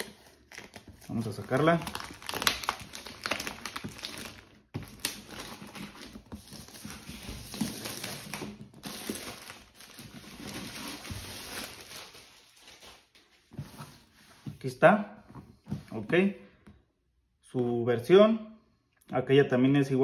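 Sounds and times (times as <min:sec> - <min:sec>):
plastic shrink-wrap crinkling: 0:00.0 - 0:13.1.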